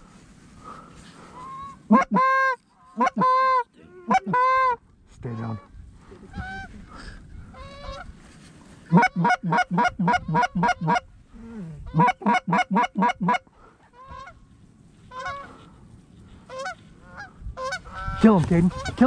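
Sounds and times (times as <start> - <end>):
geese honking: 1.3 - 4.8, 8.9 - 11.0, 11.9 - 14.4, 15.0 - 15.7, 16.4 - 19.0.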